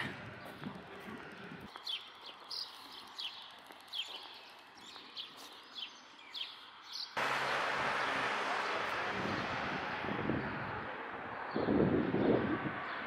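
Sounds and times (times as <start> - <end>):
bird chirping: 1.7 - 7.2
loud steady rushing noise: 7.2 - 13.0.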